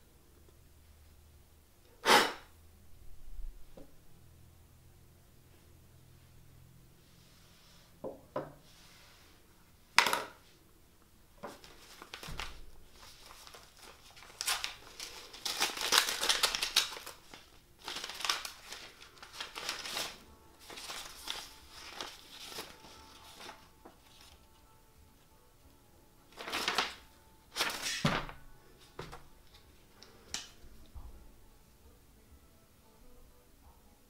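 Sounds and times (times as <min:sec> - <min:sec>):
paper rustling and crinkling: 0:11.4 - 0:24.6, 0:26.3 - 0:30.6.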